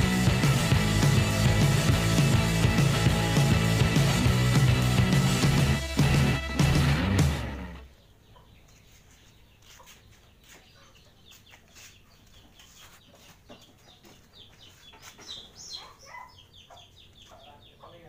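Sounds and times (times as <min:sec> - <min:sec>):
music: 0:00.0 - 0:07.9
falling bird calls: 0:07.8 - 0:18.0.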